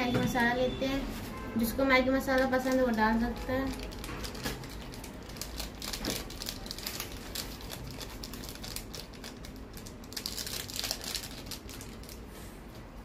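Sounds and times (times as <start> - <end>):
foil sachet crinkling: 2.1 - 12.4.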